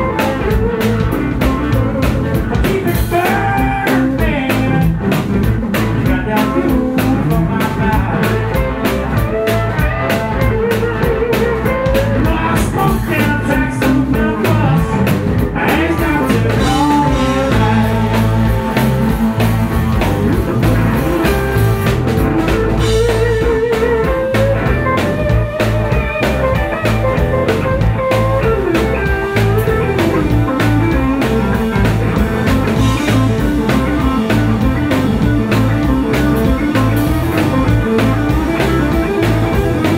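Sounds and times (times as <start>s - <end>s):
bending guitar melody: 0.0s - 39.9s
live blues band playing: 0.0s - 39.9s.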